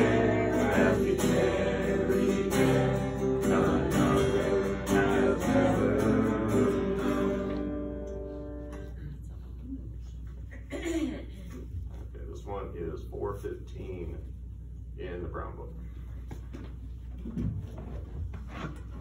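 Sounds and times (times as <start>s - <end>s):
acoustic guitar strumming: 0.0s - 8.9s.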